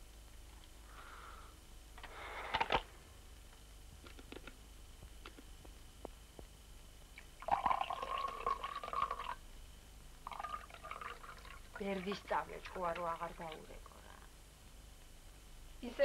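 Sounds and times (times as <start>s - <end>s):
tea pouring into cup: 7.3s - 9.4s, 10.2s - 13.9s.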